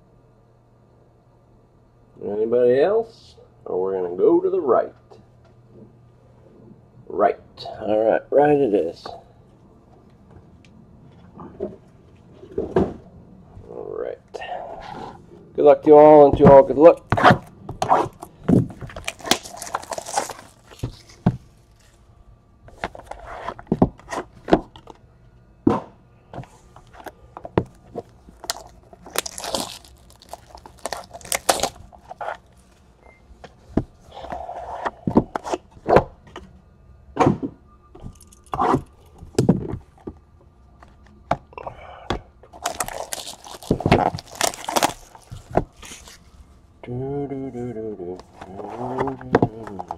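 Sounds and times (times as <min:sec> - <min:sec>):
cutter scraping and tearing packaging: 0:18.8 - 0:21.3, 0:28.4 - 0:32.4, 0:42.6 - 0:46.2.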